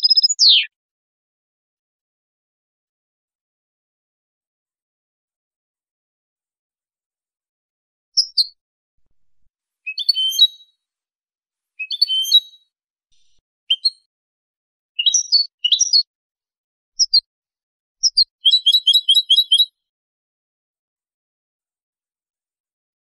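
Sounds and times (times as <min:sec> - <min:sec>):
goldfinch singing: 0:00.0 - 0:00.7, 0:09.9 - 0:10.6, 0:11.8 - 0:12.6, 0:15.0 - 0:16.0, 0:18.0 - 0:19.7.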